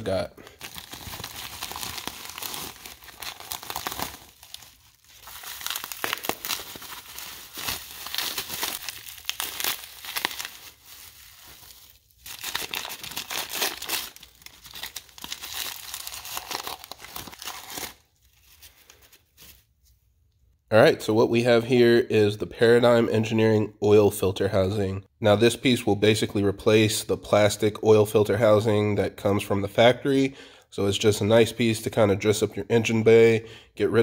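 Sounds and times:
packaging rustling: 0:00.4 - 0:19.7.

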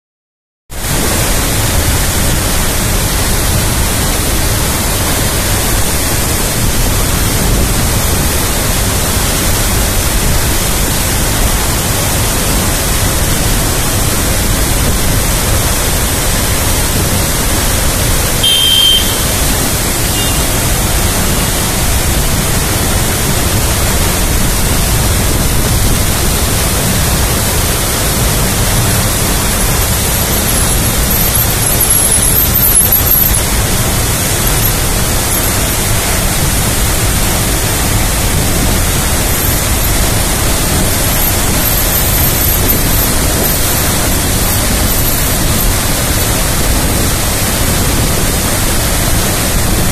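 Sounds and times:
waterfall crashing onto rocks: 0:00.7 - 0:49.9.

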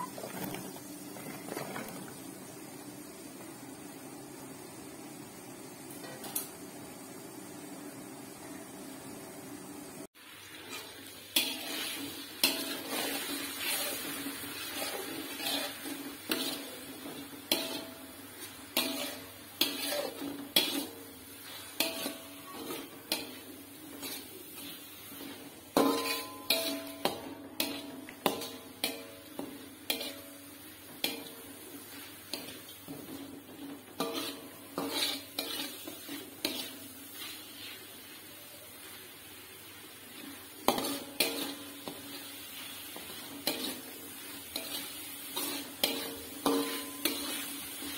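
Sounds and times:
paste sizzling in oil: 0:00.0 - 0:47.9
metal spoon scraping in a wok: 0:10.5 - 0:38.2, 0:40.1 - 0:47.9
spoon clanking against pan: 0:17.5 - 0:18.0, 0:25.7 - 0:30.4, 0:44.5 - 0:47.4.

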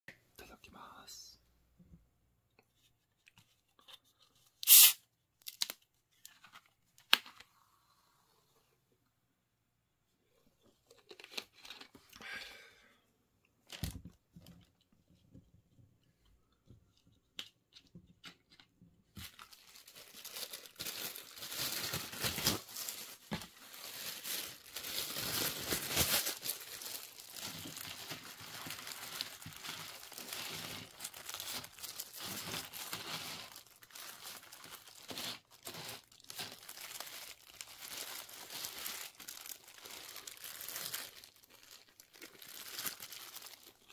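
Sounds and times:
paper wrapper crinkling: 0:10.9 - 0:12.1, 0:19.1 - 0:43.9.

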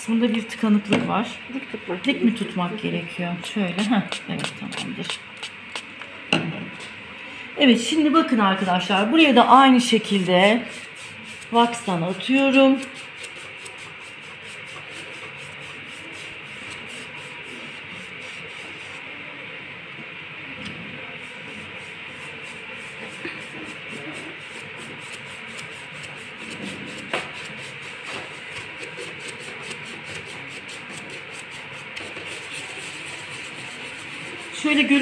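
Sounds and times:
brush scrubbing wax on panel: 0:03.4 - 0:05.9, 0:09.8 - 0:19.1, 0:21.2 - 0:35.0.

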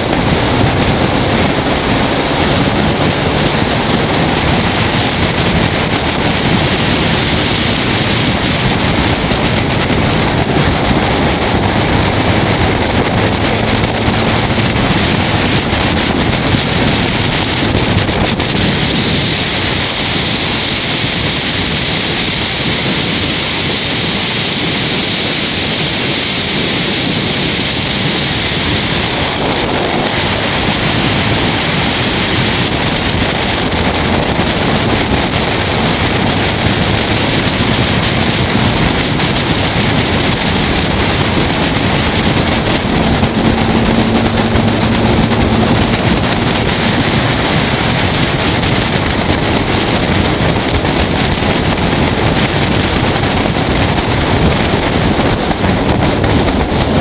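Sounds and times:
race car engine: 0:00.0 - 0:57.0
wind rushing over microphone: 0:00.0 - 0:57.0.

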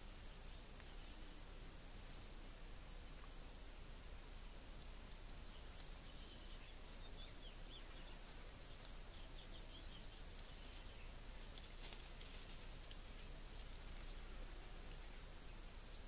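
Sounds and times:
faint bird chirps: 0:00.0 - 0:01.5, 0:05.4 - 0:11.7, 0:14.0 - 0:16.0.

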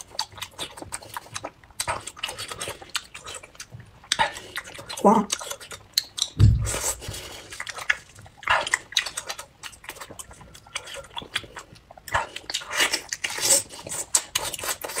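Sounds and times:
wet biting and chewing: 0:00.0 - 0:15.0.

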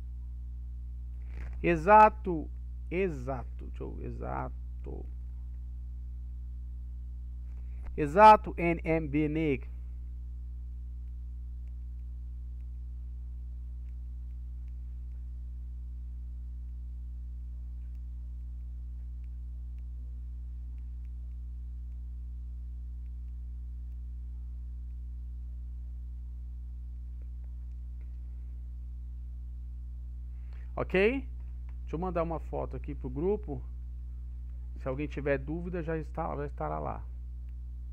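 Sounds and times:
low electrical hum: 0:00.0 - 0:37.9
faint ticks: 0:11.0 - 0:15.6, 0:17.5 - 0:25.2.

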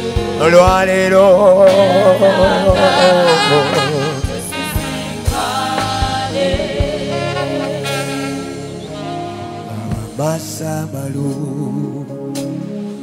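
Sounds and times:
keyboard chords: 0:00.0 - 0:13.0
man singing into a microphone: 0:00.2 - 0:04.6, 0:09.6 - 0:12.6.

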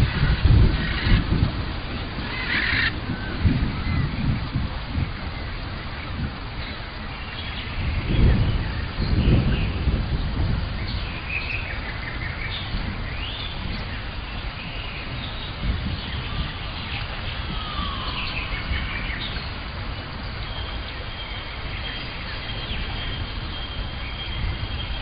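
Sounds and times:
birds chirping and whistling: 0:00.0 - 0:01.2, 0:02.1 - 0:03.0, 0:10.8 - 0:19.6, 0:20.2 - 0:25.0
constant low rumble: 0:00.0 - 0:25.0
low falling bird call: 0:14.8 - 0:19.5.

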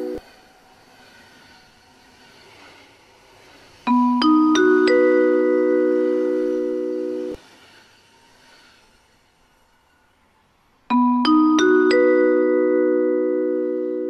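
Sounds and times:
station announcement chime: 0:00.0 - 0:00.2, 0:03.9 - 0:07.4, 0:10.9 - 0:14.0.

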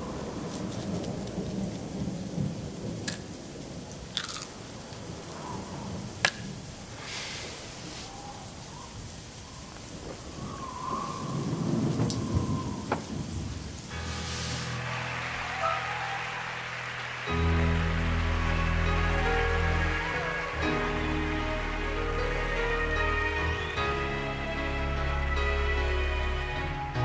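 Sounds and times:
rain falling: 0:00.0 - 0:27.0
thunder rumbling: 0:08.1 - 0:21.9
music: 0:13.9 - 0:27.0.

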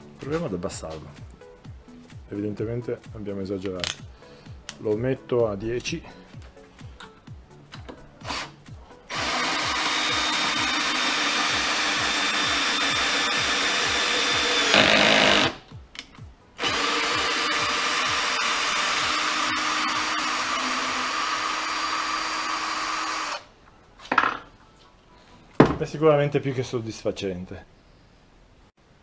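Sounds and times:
cordless drill driving screw into wood: 0:09.1 - 0:15.6, 0:16.6 - 0:23.4.

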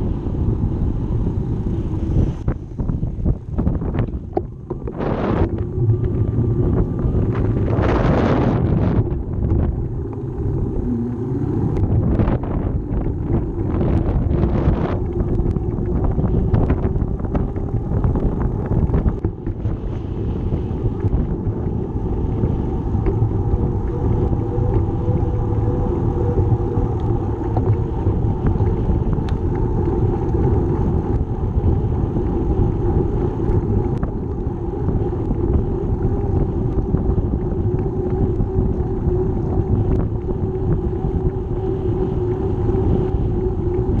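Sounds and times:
bicycle tyres on concrete: 0:00.0 - 0:44.0
wind buffeting microphone: 0:00.0 - 0:44.0.

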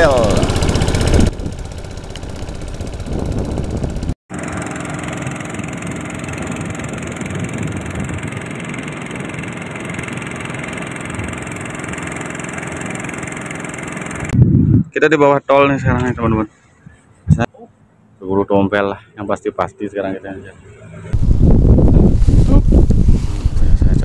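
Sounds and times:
boat petrol engine running: 0:00.0 - 0:14.4.

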